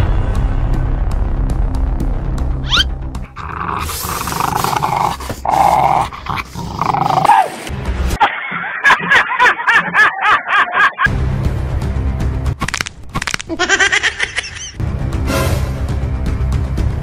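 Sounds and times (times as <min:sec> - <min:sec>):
dog growling: 0:02.7 - 0:07.7
dog barking: 0:07.1 - 0:07.6.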